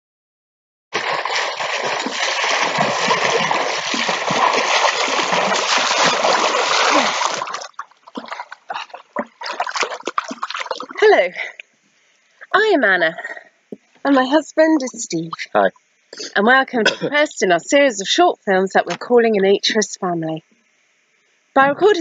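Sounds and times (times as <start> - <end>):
people swimming splashing water: 0.9 - 11.1
water lapping: 0.9 - 11.6, 14.8 - 15.7.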